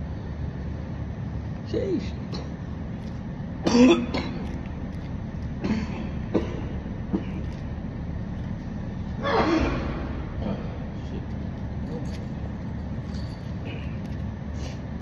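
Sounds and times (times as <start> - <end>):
man coughing: 3.6 - 4.5, 5.6 - 7.5.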